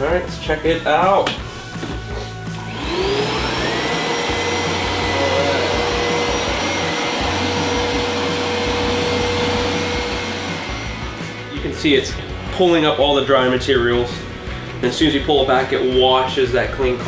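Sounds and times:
carpet washer motor whine: 0:02.5 - 0:11.6.

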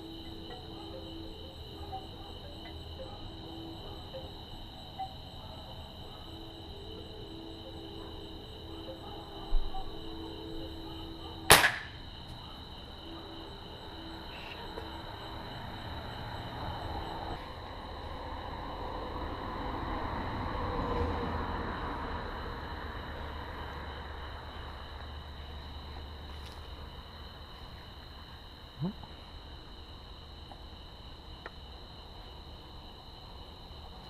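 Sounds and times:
crickets chirping: 0:00.0 - 0:34.0
bb gun shot: 0:11.5 - 0:11.9.

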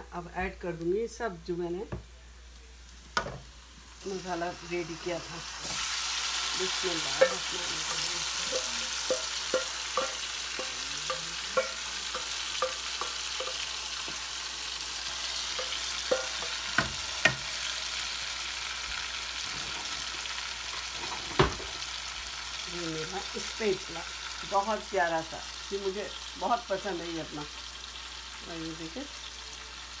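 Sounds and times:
hot oil sizzling in a wok: 0:02.0 - 0:30.0
wooden spatula knocking and scraping: 0:07.1 - 0:14.2
metal pot knocking against pan: 0:07.2 - 0:14.2, 0:15.6 - 0:17.4.

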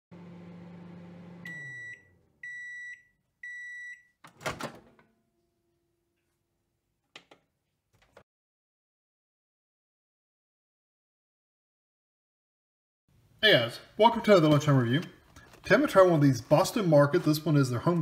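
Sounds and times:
microwave oven humming: 0:00.1 - 0:02.7
microwave beeps: 0:01.2 - 0:04.2.

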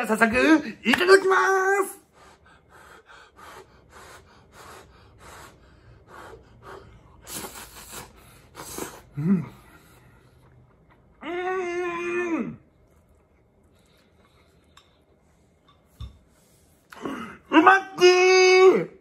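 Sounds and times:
person slurping noodles: 0:07.2 - 0:09.2.

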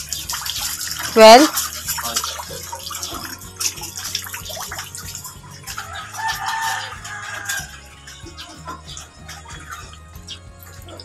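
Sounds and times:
rooster crowing: 0:05.8 - 0:07.8.

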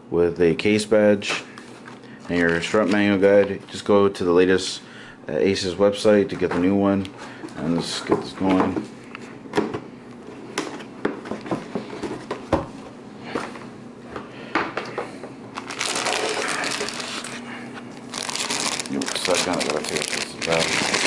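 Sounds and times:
cardboard packaging handled: 0:15.6 - 0:17.4, 0:18.0 - 0:21.0
plastic bag crinkling: 0:15.6 - 0:17.4, 0:18.0 - 0:21.0.

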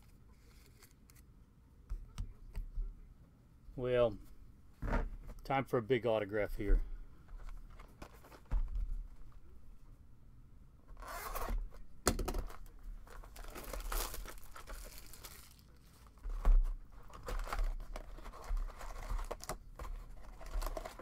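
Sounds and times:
foil wrappers tearing and crinkling: 0:13.1 - 0:16.2.

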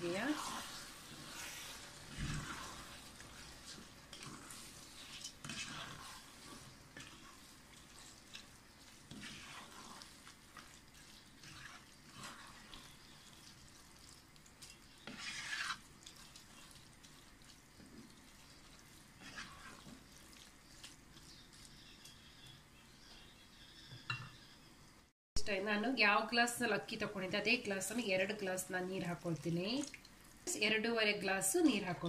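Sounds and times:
wooden spatula scraping pot: 0:00.0 - 0:24.6
faint sizzle: 0:00.0 - 0:32.0.

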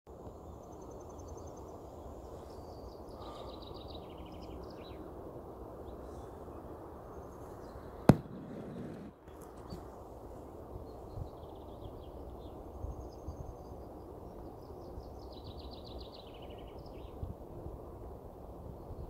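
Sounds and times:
sharp knock: 0:08.1 - 0:09.1.

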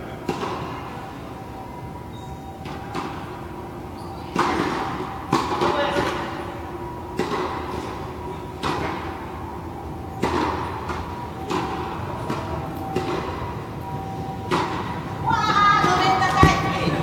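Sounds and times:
ball bouncing on hard court: 0:15.8 - 0:17.0.

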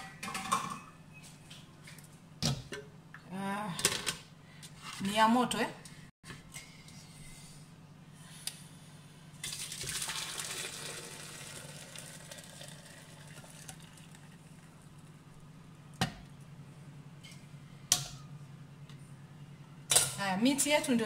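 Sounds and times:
water pouring and splashing: 0:09.4 - 0:14.4.

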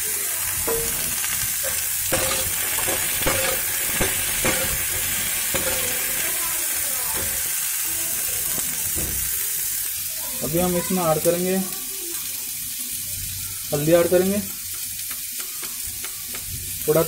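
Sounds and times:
potatoes sizzling in hot oil: 0:00.0 - 0:17.0
spatula scraping metal pan: 0:02.1 - 0:06.2.

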